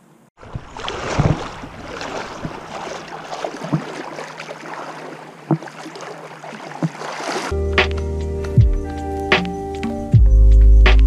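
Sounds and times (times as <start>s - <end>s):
water sloshing around legs: 0.4s - 7.5s
dull thumps of steps: 1.1s - 4.1s, 5.4s - 5.9s, 6.7s - 7.3s.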